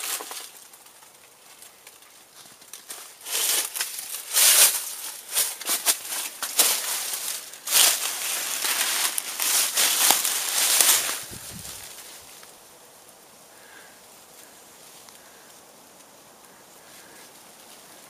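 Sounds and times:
footsteps crunching dry leaves: 1.4 - 12.6.

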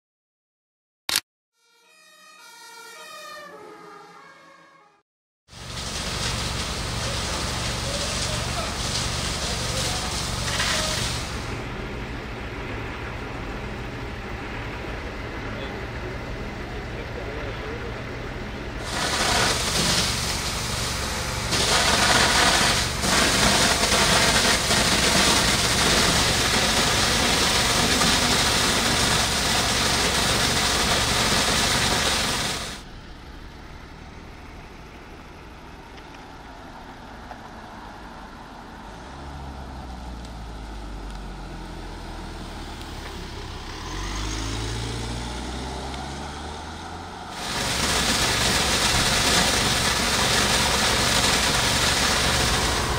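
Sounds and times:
vehicle engine: 5.5 - 52.9
loud steady rushing noise: 46.8 - 52.9.

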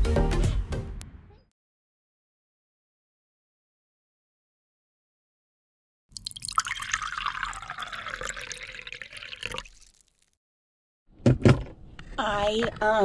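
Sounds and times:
coffee pouring into mug: 6.2 - 10.3.

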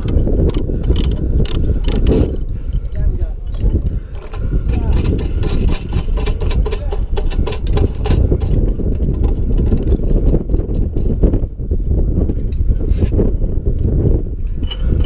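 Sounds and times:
metal harness hardware clicking: 0.0 - 11.1, 14.4 - 15.0.

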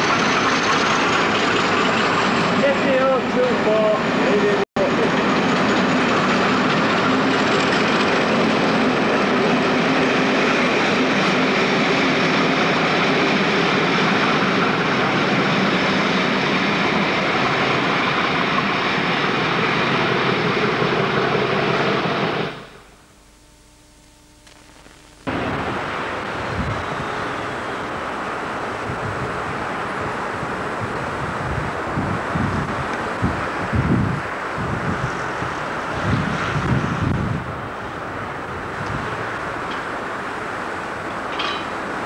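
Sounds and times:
locomotive engine drone: 0.0 - 42.0
low hiss: 22.7 - 30.8
wind on microphone: 25.3 - 39.8.

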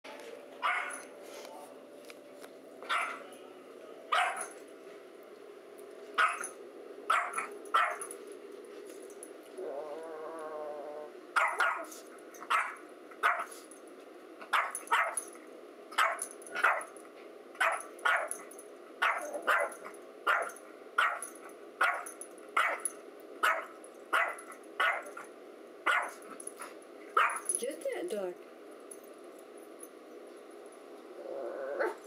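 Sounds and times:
small dog yapping: 6.2 - 6.5, 7.1 - 8.0, 11.4 - 11.9, 19.0 - 19.7, 20.3 - 21.2, 21.8 - 22.8, 23.4 - 25.1, 25.9 - 26.2, 27.2 - 27.4
dog growling: 9.5 - 11.2, 31.1 - 32.0.

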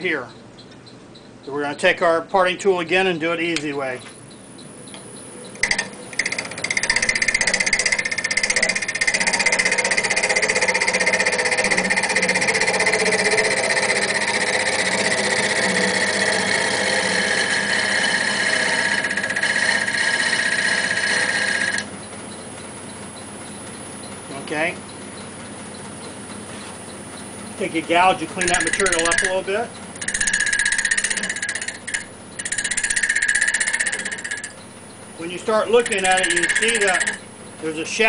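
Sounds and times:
wood lathe running: 5.6 - 21.9, 27.6 - 38.0
parting tool scraping wood: 28.1 - 34.6, 35.4 - 37.2.

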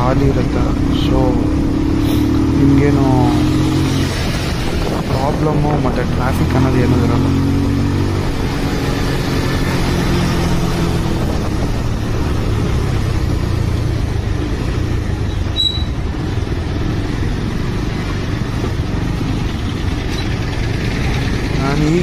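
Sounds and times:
motorcycle engine: 0.0 - 22.0
wind noise: 3.2 - 14.6.

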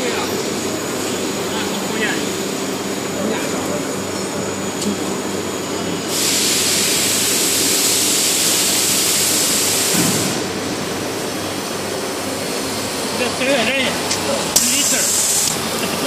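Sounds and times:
loud hiss: 5.5 - 16.0.

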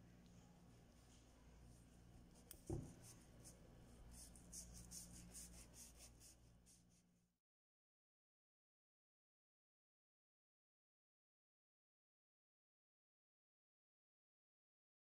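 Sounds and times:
low steady hum: 0.0 - 7.3.

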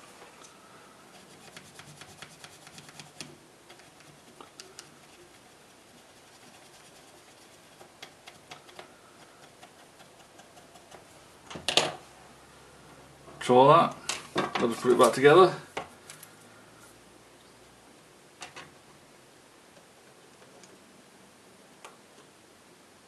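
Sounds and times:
brush scratching circuit board: 1.1 - 11.2.

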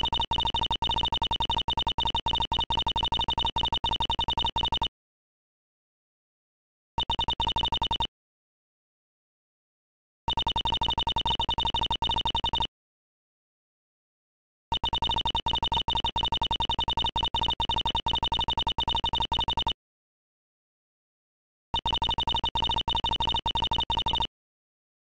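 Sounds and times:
short electronic text beeps: 0.0 - 4.9, 7.0 - 8.1, 10.3 - 12.7, 14.8 - 19.8, 21.8 - 24.3.

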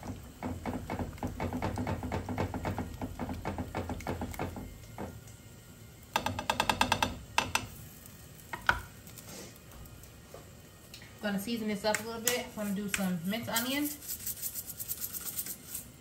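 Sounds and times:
whisk stirring thick filling: 12.6 - 16.0.

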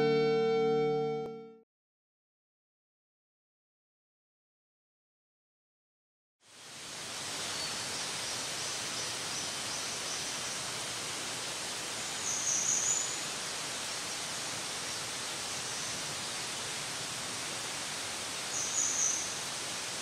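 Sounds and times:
brief high-pitched sound: 0.0 - 1.6
forest ambience hiss: 6.4 - 20.0.

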